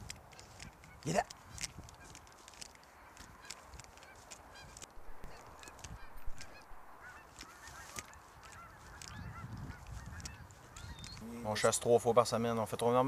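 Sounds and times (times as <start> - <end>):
scattered clicks: 0.0 - 6.7, 7.3 - 11.2
geese honking: 2.0 - 11.7.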